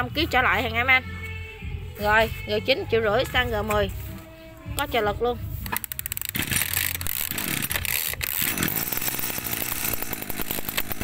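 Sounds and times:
brush cutter engine buzzing: 5.6 - 11.0.

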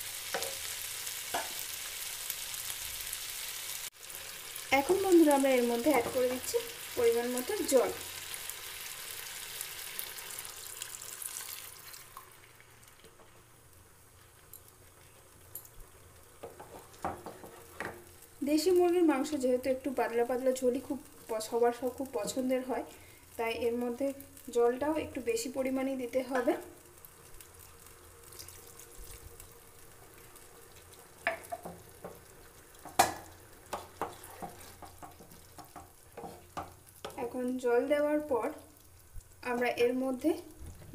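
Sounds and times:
water sizzling in hot pan: 0.0 - 40.9
pan clicking and knocking on burner: 32.8 - 37.2.

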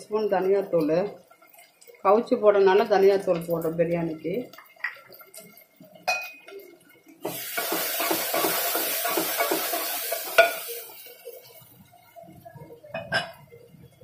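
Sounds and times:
masala sizzling in oil: 0.0 - 14.0.

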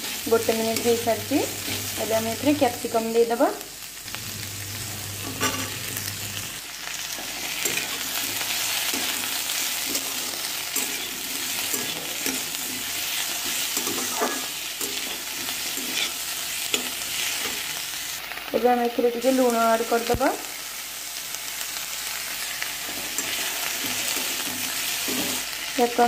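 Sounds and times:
vegetables sizzling in hot oil: 0.0 - 26.0
metal spatula scraping pan: 5.2 - 6.1, 7.2 - 17.7.

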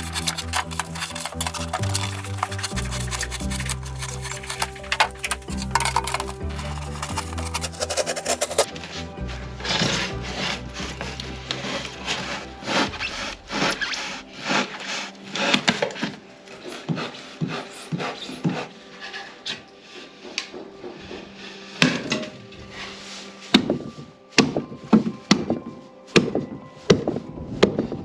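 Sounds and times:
utility knife cutting foam board: 0.0 - 8.7.

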